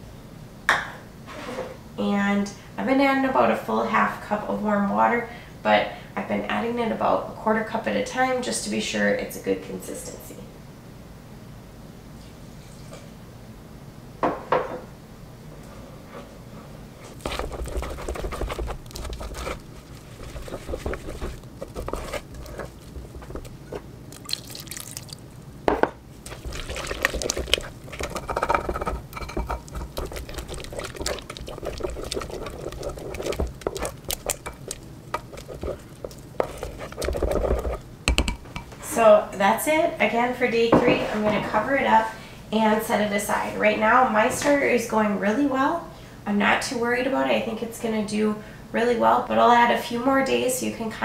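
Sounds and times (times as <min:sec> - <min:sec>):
wooden spoon stirring dough: 0:17.0 - 0:25.0, 0:26.2 - 0:38.7
water pouring: 0:24.1 - 0:25.3, 0:26.2 - 0:37.8
spoon knocking against crock: 0:27.3 - 0:38.7.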